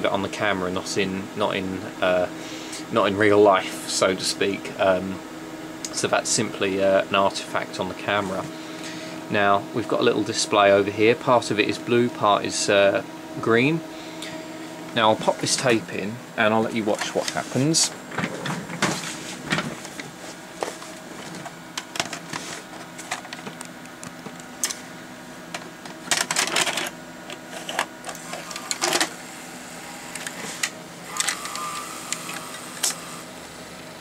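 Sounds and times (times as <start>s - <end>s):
tape deck motor whirring: 16.8s - 34.0s
gears and levers clicking: 30.1s - 33.0s.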